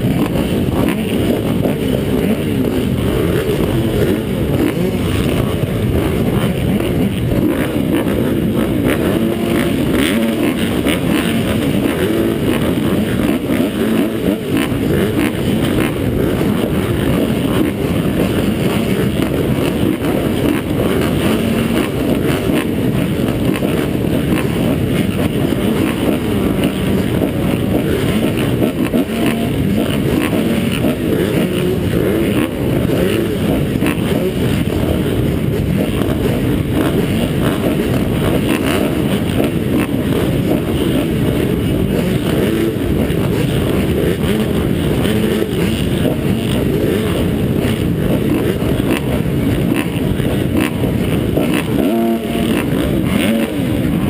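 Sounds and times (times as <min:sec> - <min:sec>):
dirt bike engines rumbling: 0:00.0 - 0:54.0.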